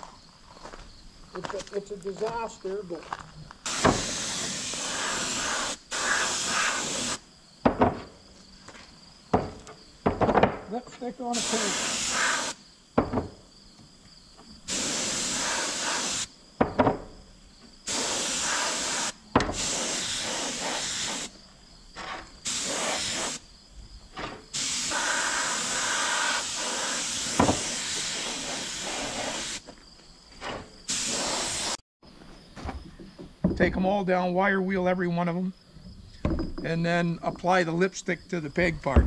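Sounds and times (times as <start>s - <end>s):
spray gun hissing: 3.6s - 7.2s, 11.2s - 12.6s, 14.7s - 16.3s, 17.9s - 21.4s, 22.4s - 23.4s, 24.5s - 29.6s, 30.9s - 31.8s.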